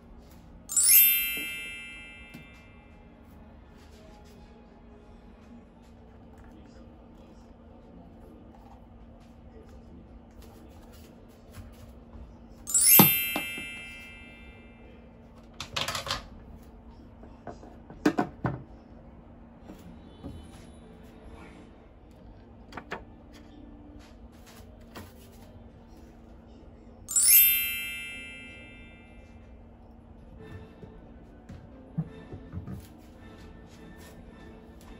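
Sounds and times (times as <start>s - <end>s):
bright chime: 0.7s - 3.0s, 12.7s - 14.9s, 27.1s - 29.4s
plastic items clicking and knocking: 15.6s - 16.3s.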